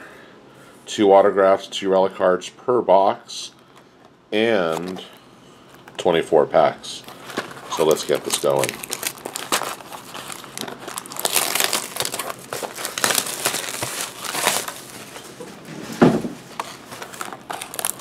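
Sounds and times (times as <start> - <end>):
plastic wrapping crinkling and tearing: 7.0 - 15.4, 16.4 - 18.0
dull thump: 15.7 - 16.4.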